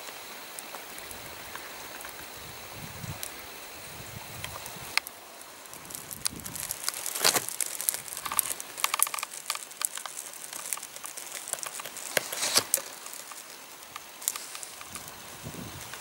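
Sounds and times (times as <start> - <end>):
footsteps through dry grass: 5.6 - 16.0.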